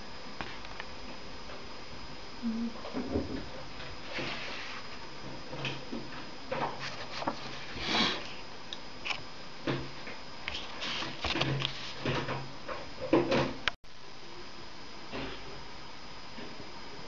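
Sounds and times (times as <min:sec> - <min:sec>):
faint steady hum: 0:00.0 - 0:17.0
paper rustling: 0:06.8 - 0:07.9.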